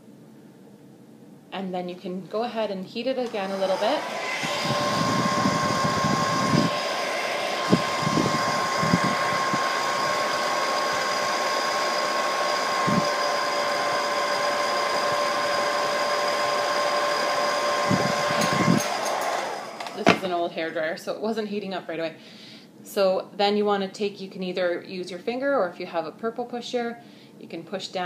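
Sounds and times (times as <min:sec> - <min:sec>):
hair dryer running: 0:03.2 - 0:20.4.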